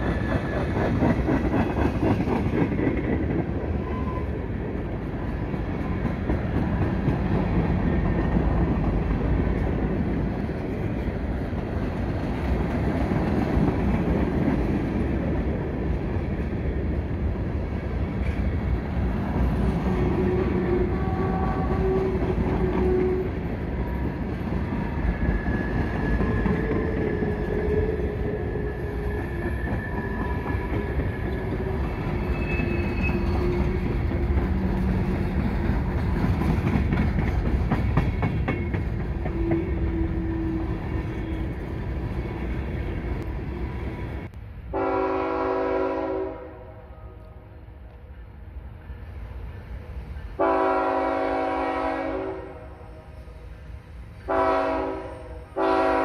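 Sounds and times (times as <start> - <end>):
clacks over rail joints: 0.0 - 3.6, 33.0 - 40.0
train wheels rumbling on rail: 0.0 - 56.0
faint wheel squeals: 32.1 - 33.8.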